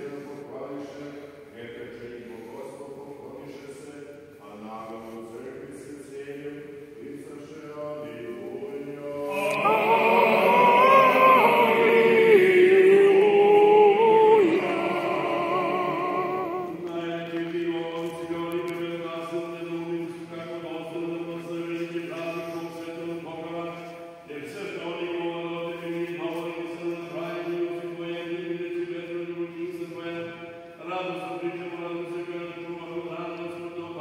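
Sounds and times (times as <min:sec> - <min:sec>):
men chanting: 0:08.1 - 0:16.9.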